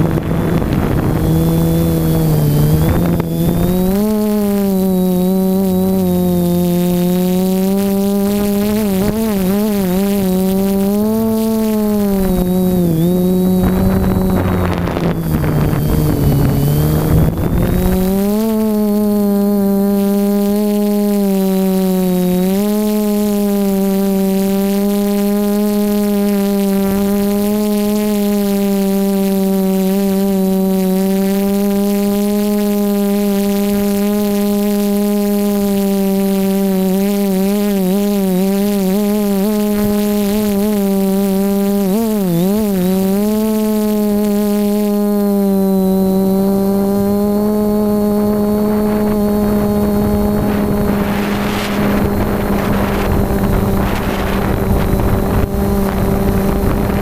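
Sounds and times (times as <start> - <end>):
wind rushing over microphone: 0.0 - 6.4, 7.9 - 20.4, 46.7 - 57.0
drone propellers humming: 0.0 - 57.0.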